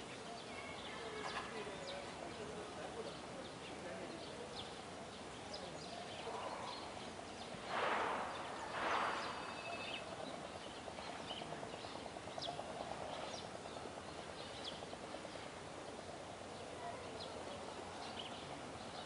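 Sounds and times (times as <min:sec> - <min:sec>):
bird chirps: 0:05.5 - 0:11.5
rushing swishes: 0:07.5 - 0:10.1.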